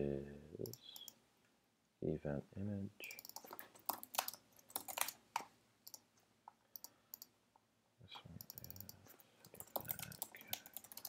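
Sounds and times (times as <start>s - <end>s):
keyboard keys clicking: 3.2s - 5.2s, 8.4s - 11.0s
mouse clicks: 6.7s - 7.4s, 8.4s - 11.0s.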